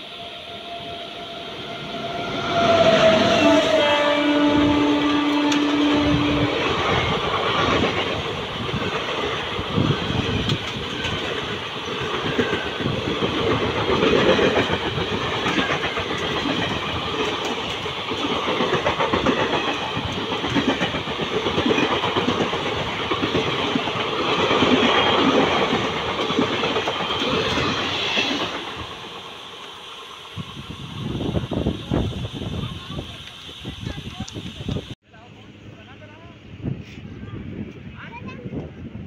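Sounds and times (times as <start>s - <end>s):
train rumble: 0.0s - 39.0s
train wheels clicking over rail joints: 5.0s - 30.6s.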